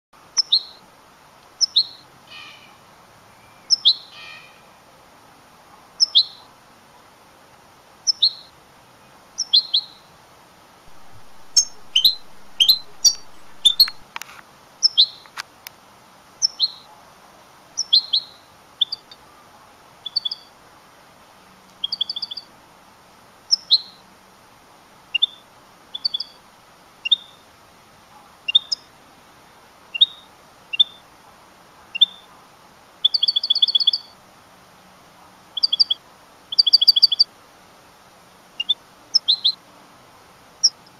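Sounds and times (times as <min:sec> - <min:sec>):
goldfinch calling: 0:10.9 - 0:14.0
sharp clicks: 0:13.0 - 0:14.3.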